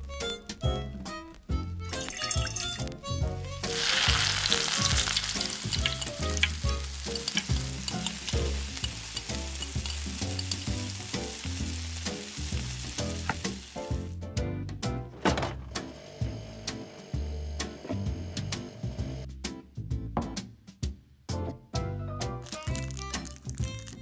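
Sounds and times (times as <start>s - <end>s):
oil sizzling in a pan: 3.6s - 14.1s, 22.4s - 24.0s.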